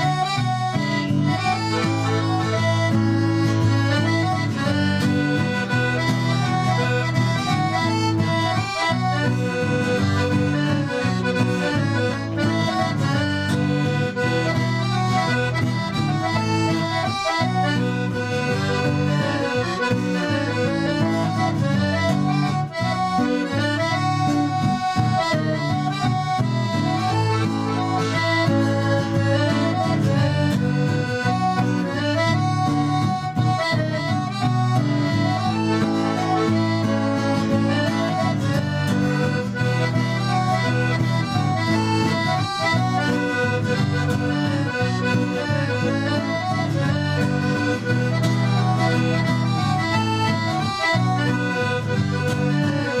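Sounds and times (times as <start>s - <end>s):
acoustic guitar: 0.0s - 53.0s
piano accordion folk dance tune: 0.0s - 53.0s.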